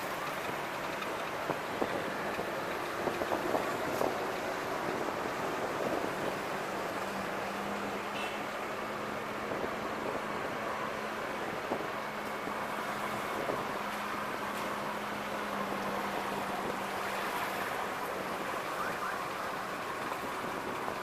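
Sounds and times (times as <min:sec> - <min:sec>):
car road noise: 0:00.0 - 0:21.0
low engine hum: 0:00.0 - 0:21.0.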